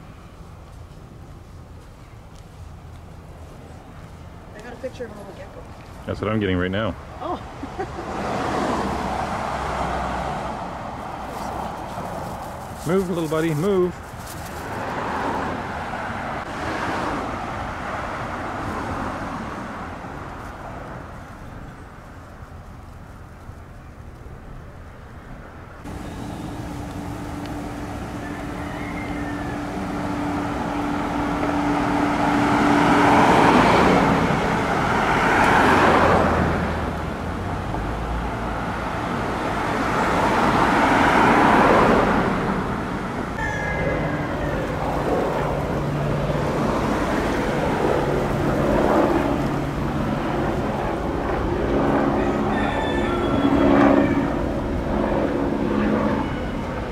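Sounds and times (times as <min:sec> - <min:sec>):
cars passing by: 0:00.0 - 0:56.9.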